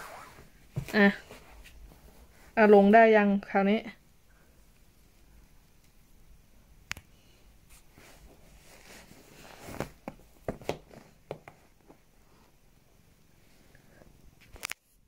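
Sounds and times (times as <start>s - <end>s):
cushion and clothing rustling: 0.0s - 2.8s, 7.6s - 12.8s.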